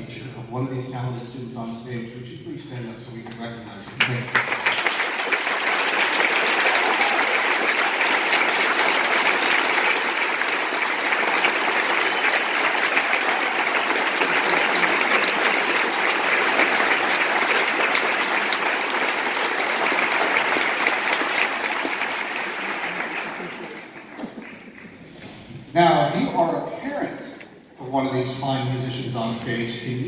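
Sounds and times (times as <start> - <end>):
audience applauding: 3.8 - 25.1.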